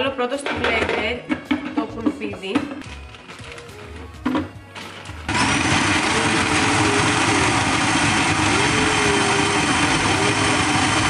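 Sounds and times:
food processor chopping: 0:05.3 - 0:11.0.

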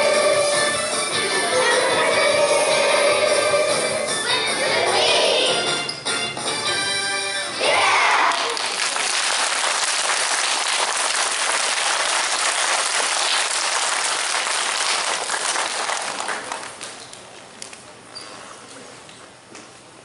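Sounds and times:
children clapping: 0:08.3 - 0:17.2.

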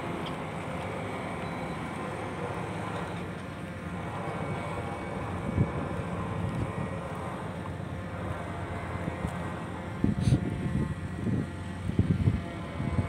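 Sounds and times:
diesel engine droning: 0:00.0 - 0:13.0.

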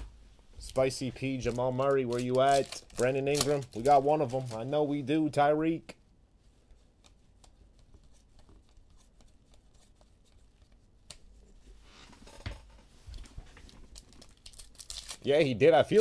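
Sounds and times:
cards rustling: 0:00.6 - 0:05.0, 0:13.1 - 0:16.0.

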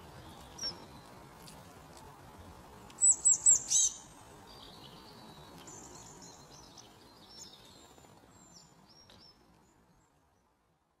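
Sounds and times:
robin singing: 0:00.1 - 0:01.2, 0:03.0 - 0:10.5.

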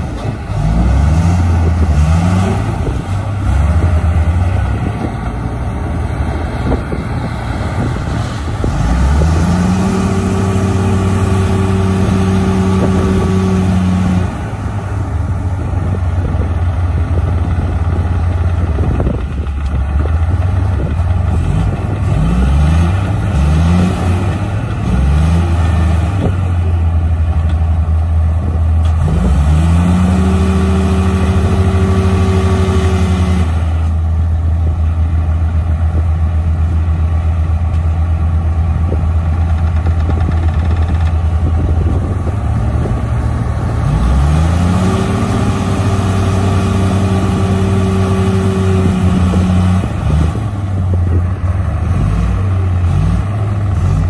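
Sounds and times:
bulldozer diesel engines revving: 0:00.0 - 0:54.0.

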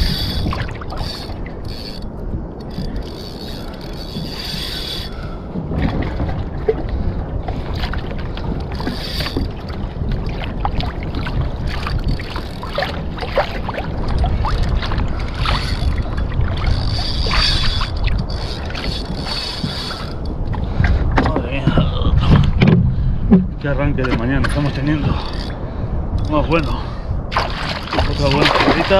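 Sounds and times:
water lapping against hull: 0:00.0 - 0:28.9
wind on microphone: 0:00.0 - 0:28.9
small splashes and clicks: 0:27.3 - 0:28.9.

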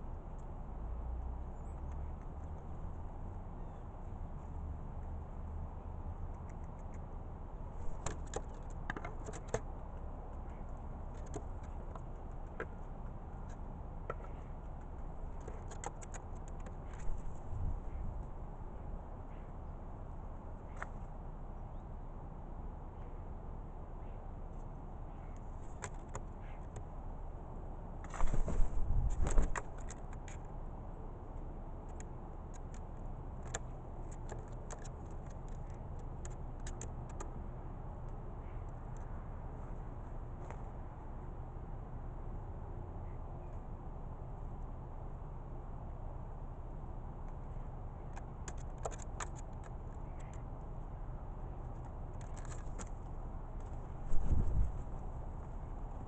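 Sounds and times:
low steady rumble: 0:00.0 - 0:56.0
birds pecking clicks and taps: 0:06.2 - 0:07.1, 0:07.9 - 0:18.0, 0:20.7 - 0:21.1, 0:24.5 - 0:26.9, 0:29.2 - 0:30.6, 0:31.4 - 0:39.2, 0:47.2 - 0:50.9, 0:51.6 - 0:54.0.

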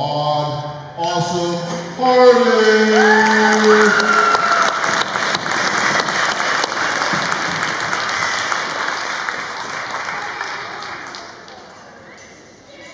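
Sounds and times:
audience applauding: 0:02.5 - 0:11.7.

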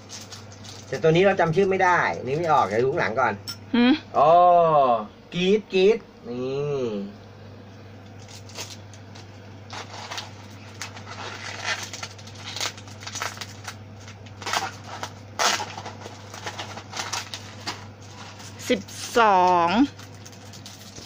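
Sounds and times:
plastic wrappers crinkling: 0:00.0 - 0:03.1, 0:08.1 - 0:21.0
steady low hum: 0:00.0 - 0:21.0.

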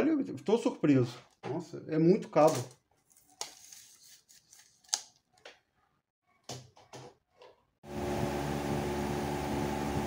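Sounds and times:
clicks and rustles of handling: 0:02.3 - 0:05.7.

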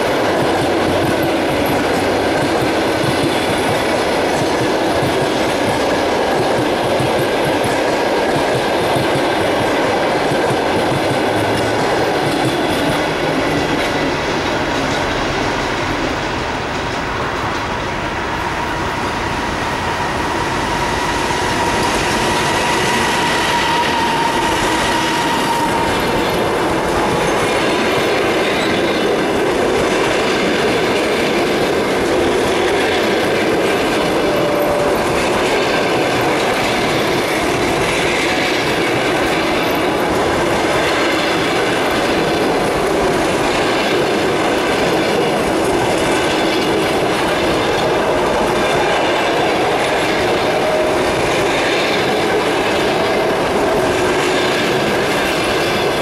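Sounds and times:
train wheels rumbling on rails: 0:00.0 - 0:56.0.

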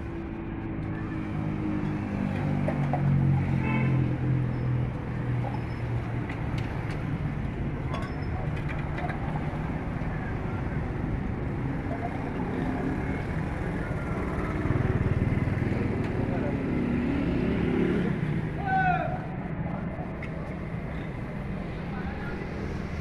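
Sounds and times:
street traffic: 0:00.0 - 0:23.0.

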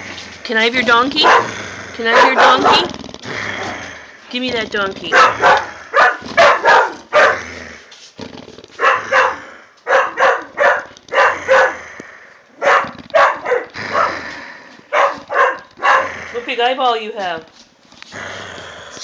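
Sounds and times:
dog barking: 0:01.1 - 0:02.9, 0:05.1 - 0:07.4, 0:08.8 - 0:11.8, 0:12.6 - 0:14.2, 0:14.9 - 0:16.2.

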